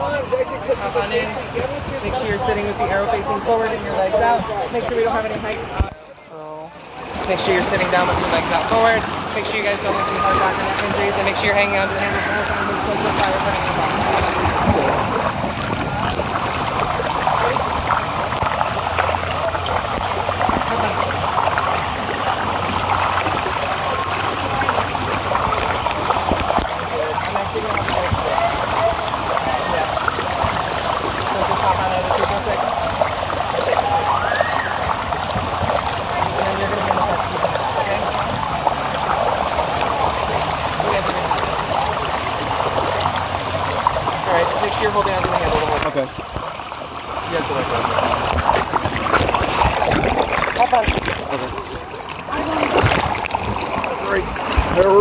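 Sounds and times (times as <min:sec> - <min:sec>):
water rushing down a slide: 0:00.0 - 0:55.0.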